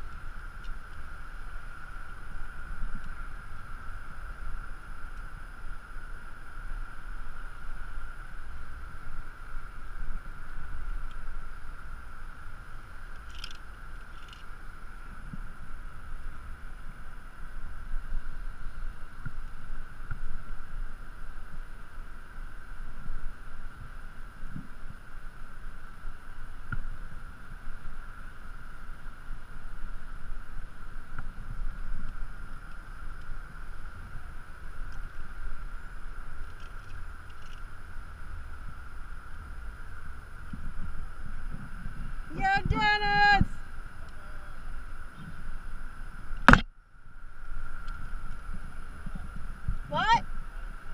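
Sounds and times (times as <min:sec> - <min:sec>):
steady whine: 0:00.0 - 0:50.9
wind buffeting microphone: 0:37.8 - 0:43.8.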